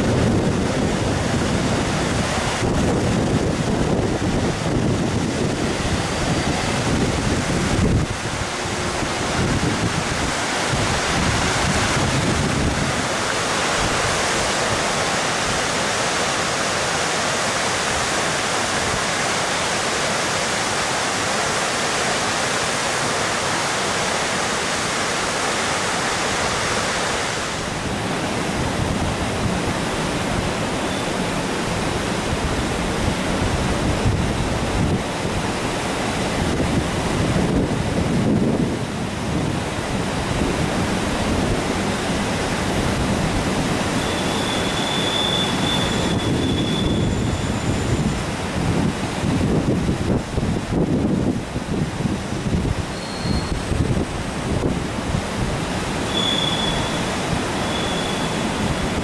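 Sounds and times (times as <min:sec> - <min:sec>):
gusty rumbling: 0:00.0 - 0:14.2, 0:31.6 - 0:43.9, 0:46.0 - 0:52.9
wind buffeting microphone: 0:00.0 - 0:14.2, 0:31.6 - 0:44.0, 0:45.5 - 0:56.0.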